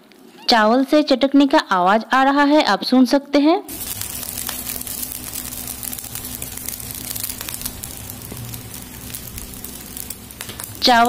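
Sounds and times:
rice crackling while roasting: 3.7s - 11.0s
steady low hum: 3.7s - 11.0s.

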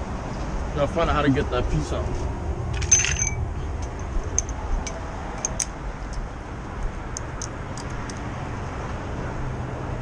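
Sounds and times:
steady low rumble: 0.0s - 8.6s
light metallic clicks and clinks: 2.8s - 6.2s.

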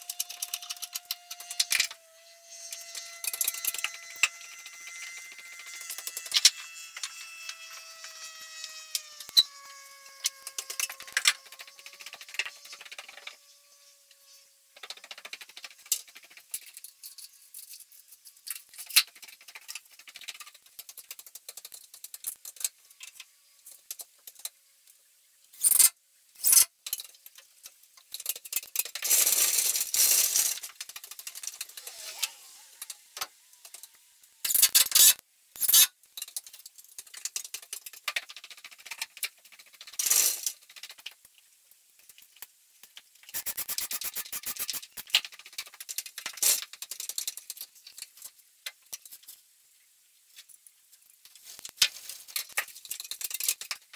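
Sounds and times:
fast run of ticks: 3.2s - 14.2s, 14.8s - 16.9s, 43.3s - 47.5s
sped-up construction clicks and rattles: 14.8s - 16.9s, 43.3s - 47.6s
short bursts of hiss: 43.3s - 45.1s.

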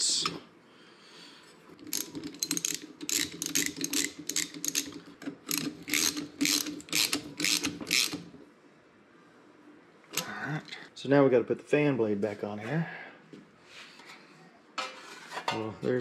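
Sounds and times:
socket ratchet clicking: 1.9s - 8.3s.

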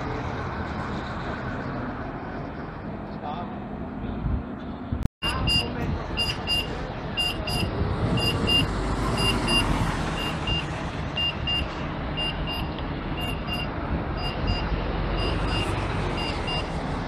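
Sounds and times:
buses engine and tyre rumble: 0.0s - 17.0s
high electronic beeps: 5.2s - 16.7s.

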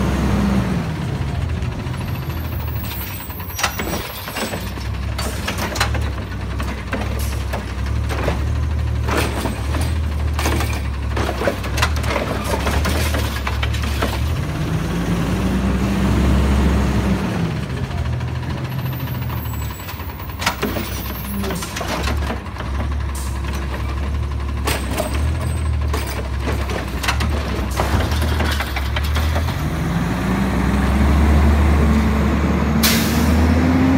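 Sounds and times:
truck engine humming and revving: 0.0s - 33.9s
knocks and clanks: 2.8s - 14.4s, 19.6s - 29.6s.

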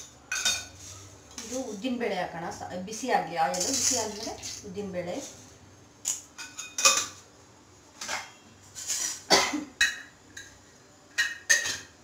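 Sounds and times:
steel utensils clinking: 3.4s - 5.4s.

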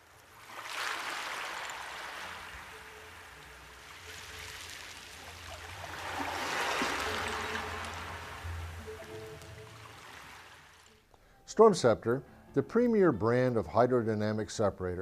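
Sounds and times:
water rushing: 0.0s - 11.1s.

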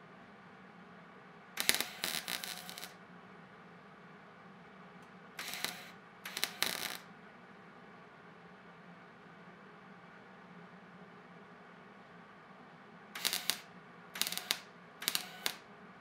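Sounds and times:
arc welder crackling buzz: 1.6s - 3.0s, 5.4s - 7.1s, 13.2s - 15.7s.

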